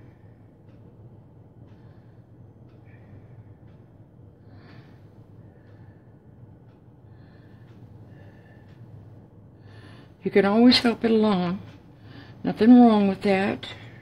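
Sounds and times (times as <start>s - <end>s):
soft breaths: 0.0s - 10.2s, 11.6s - 12.5s, 13.2s - 14.0s
faint low hum: 0.0s - 14.0s.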